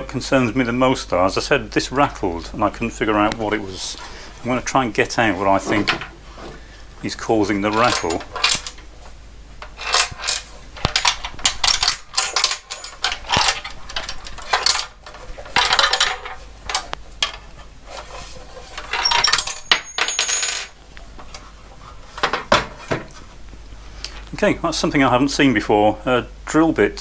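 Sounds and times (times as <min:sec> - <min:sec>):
drill bit rattling in metal chassis: 0:09.6 - 0:16.3.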